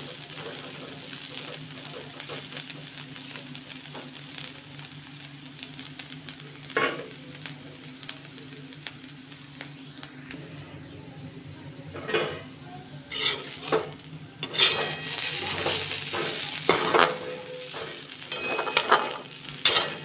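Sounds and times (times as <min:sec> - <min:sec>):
potatoes sizzling in oil: 0:00.0 - 0:20.0
low hum: 0:09.5 - 0:18.4
spoon stirring in pan: 0:13.1 - 0:20.0.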